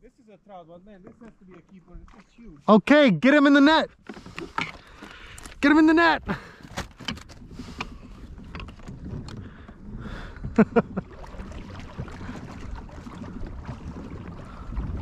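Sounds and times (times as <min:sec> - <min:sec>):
water against plastic kayak: 0:00.7 - 0:15.0
wind buffeting microphone: 0:04.8 - 0:15.0.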